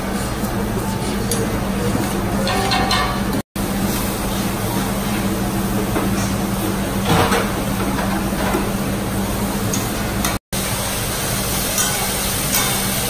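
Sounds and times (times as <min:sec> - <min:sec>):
food sizzling on grill: 0:10.6 - 0:13.0.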